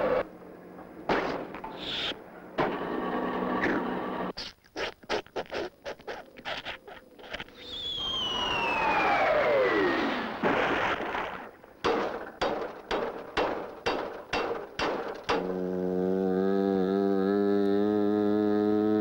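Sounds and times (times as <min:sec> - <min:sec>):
buzzing humming tone: 0:00.0 - 0:04.4, 0:15.1 - 0:19.0
whistle sliding down in pitch: 0:07.6 - 0:10.1.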